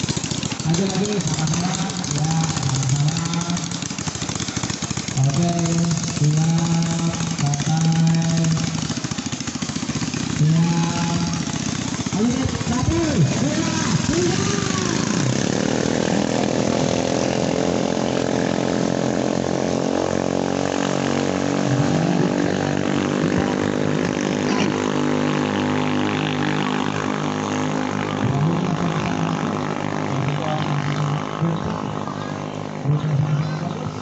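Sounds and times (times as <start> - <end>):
boat engine running: 0.0 - 34.0.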